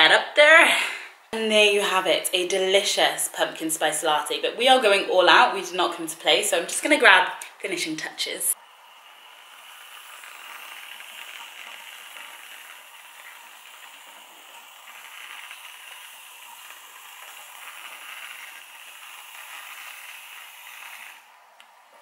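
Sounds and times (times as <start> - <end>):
aerosol whipped cream hissing: 8.6 - 21.4.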